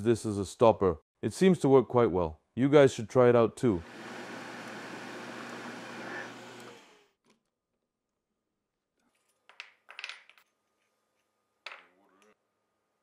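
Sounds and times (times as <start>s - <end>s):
drill press whirring: 3.8s - 7.2s.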